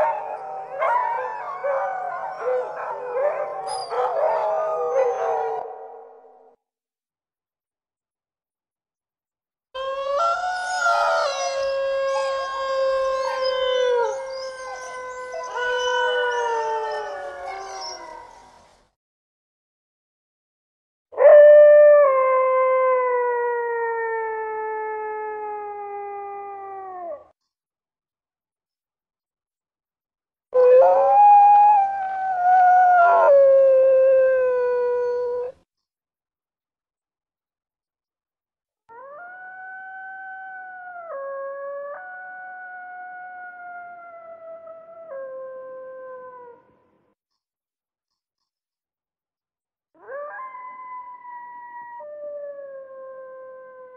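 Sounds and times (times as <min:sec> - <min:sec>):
dogs howling: 0:00.0 - 0:06.1, 0:09.8 - 0:18.4, 0:30.6 - 0:35.6.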